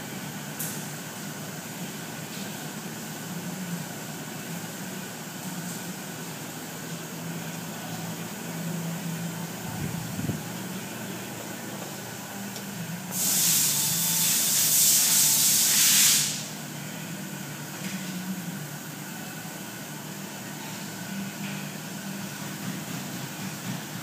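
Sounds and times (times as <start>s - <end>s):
constant low hum: 0.0s - 13.3s
hiss of rushing air: 13.1s - 16.6s.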